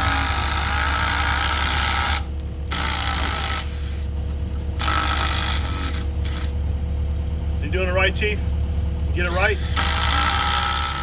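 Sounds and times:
cordless power driver running: 0.0s - 4.1s, 4.8s - 6.6s, 9.3s - 11.0s
low machine hum: 0.0s - 11.0s.

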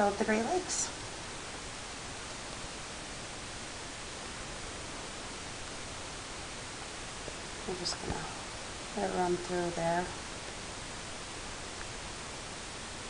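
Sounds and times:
room noise hiss: 0.0s - 13.0s.

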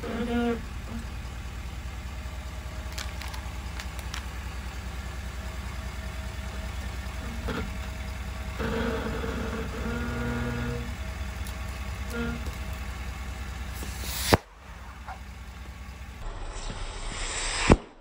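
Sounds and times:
truck engine idling: 0.0s - 16.4s
sharp clicks: 2.8s - 4.6s
short hiss: 13.7s - 14.4s.

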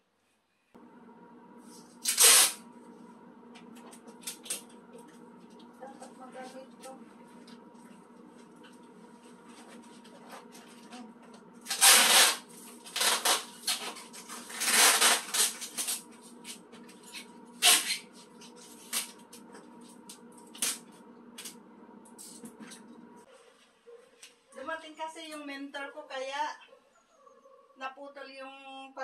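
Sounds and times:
packing tape ripping: 2.0s - 2.6s, 11.6s - 16.0s, 17.6s - 18.0s, 20.5s - 20.8s
tape and cardboard rustling: 2.0s - 2.6s, 11.6s - 20.8s.

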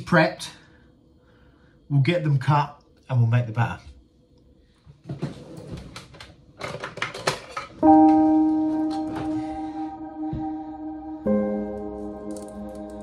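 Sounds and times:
music held chord: 7.8s - 13.0s.

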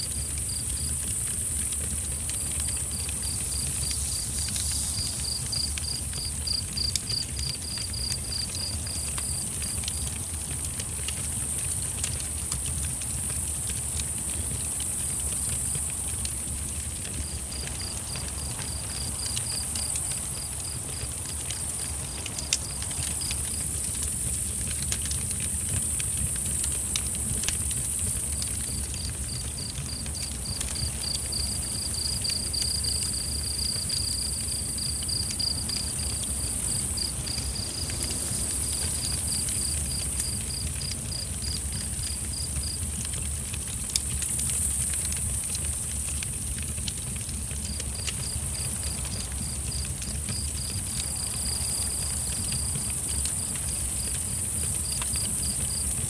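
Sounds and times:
campfire popping: 0.0s - 56.0s
cricket chirping: 0.1s - 10.3s, 13.9s - 43.2s, 47.5s - 56.0s
insects hissing: 2.4s - 7.2s, 30.8s - 42.8s.

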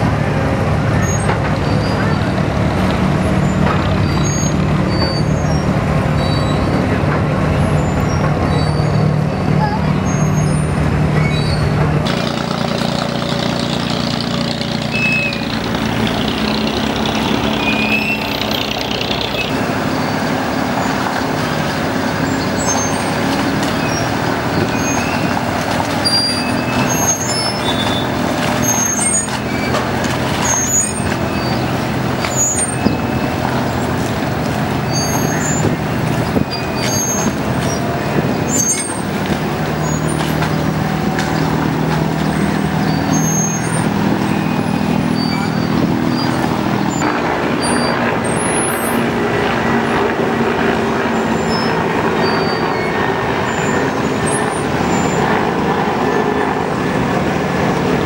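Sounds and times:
boat diesel engines humming: 0.0s - 58.0s.

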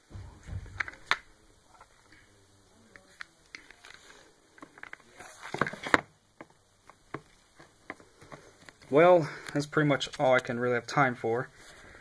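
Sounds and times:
dull handling bump: 0.0s - 1.2s.

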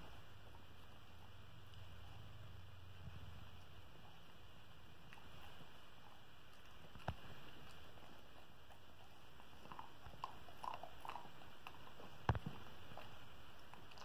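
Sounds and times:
dog crunching a treat: 6.0s - 14.0s.

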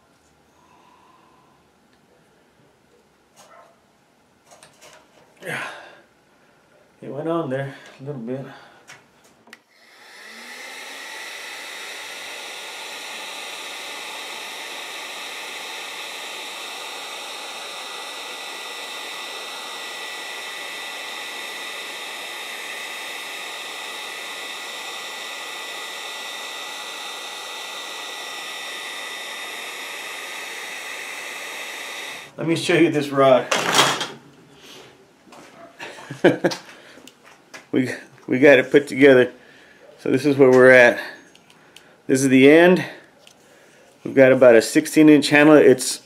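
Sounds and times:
heat gun blowing with fan whine: 9.5s - 32.4s.

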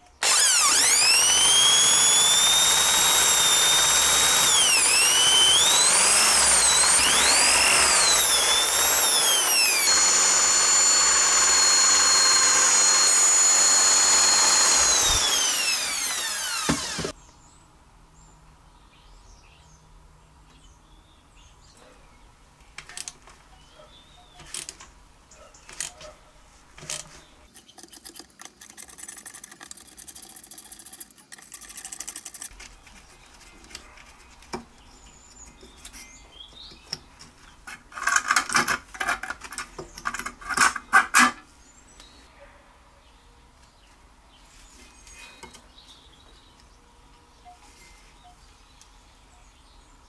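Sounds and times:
birds chirping faintly: 14.7s - 29.0s, 29.7s - 37.7s, 41.5s - 50.0s.

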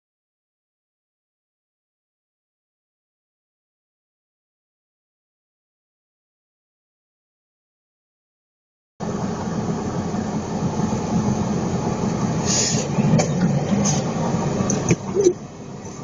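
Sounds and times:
car tyres and engine rumble: 9.0s - 16.0s.

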